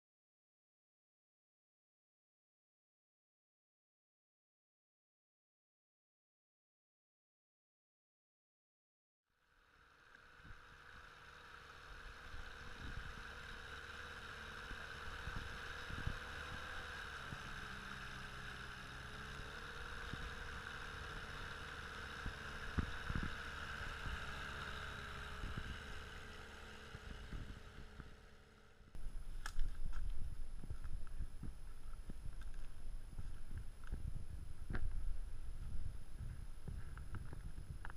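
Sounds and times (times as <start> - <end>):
outboard motor humming: 9.4 - 37.9
loud low rumble: 22.2 - 37.9.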